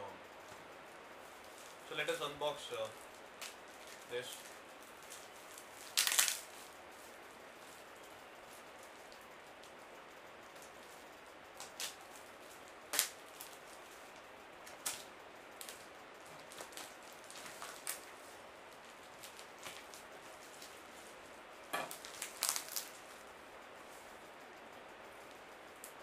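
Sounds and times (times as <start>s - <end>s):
plastic wrapping crackling: 1.3s - 9.7s, 11.6s - 21.2s, 21.8s - 23.3s.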